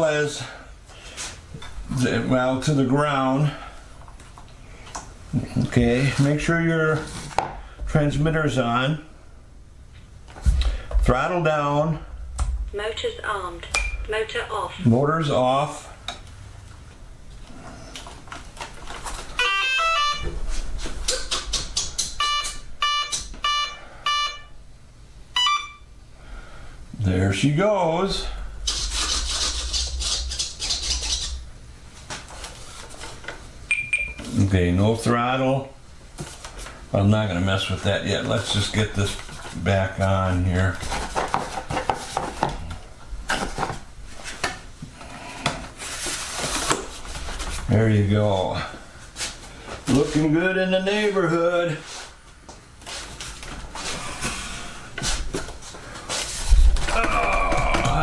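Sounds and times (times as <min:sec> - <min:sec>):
identical electronic beeps: 0:19.4 - 0:20.4, 0:22.2 - 0:24.5
stepped electronic tones: 0:19.4 - 0:20.6, 0:22.2 - 0:24.5
rustling scrape: 0:28.7 - 0:31.4, 0:45.7 - 0:47.7, 0:55.9 - 0:56.7.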